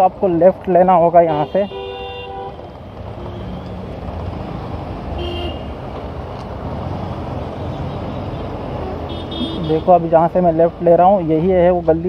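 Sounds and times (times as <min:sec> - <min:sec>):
motorcycle engine and road noise: 0:00.0 - 0:12.0
vehicle horn beep: 0:01.3 - 0:02.6, 0:05.2 - 0:05.7, 0:09.1 - 0:09.8.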